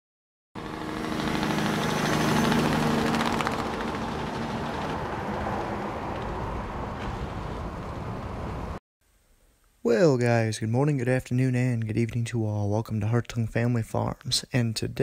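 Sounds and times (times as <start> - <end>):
tractor engine running: 0.6 - 8.8.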